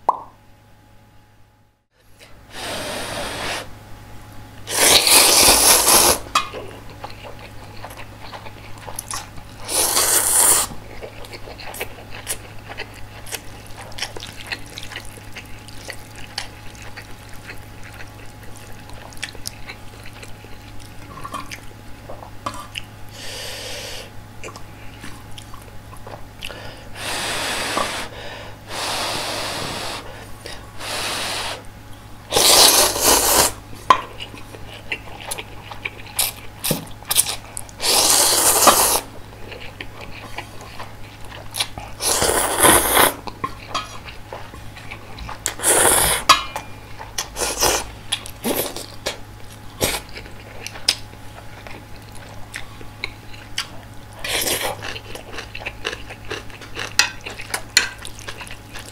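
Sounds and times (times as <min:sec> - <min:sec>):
wet chewing: 0:04.8 - 0:21.7, 0:32.4 - 0:46.3, 0:46.9 - 0:58.9.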